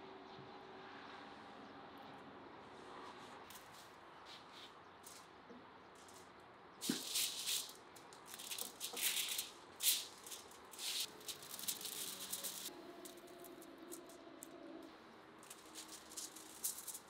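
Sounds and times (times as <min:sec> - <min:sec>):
aluminium foil crinkling: 0:06.8 - 0:14.2, 0:15.4 - 0:17.0.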